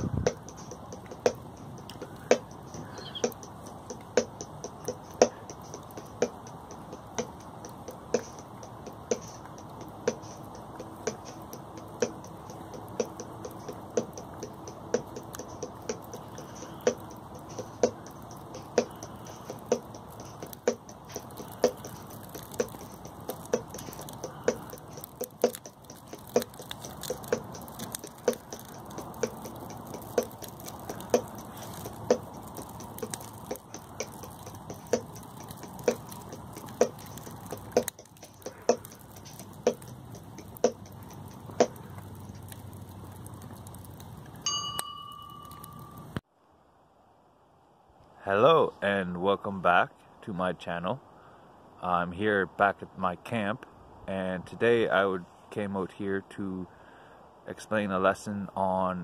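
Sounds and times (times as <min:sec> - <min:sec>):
sharp knocks: 0:00.0 - 0:42.6.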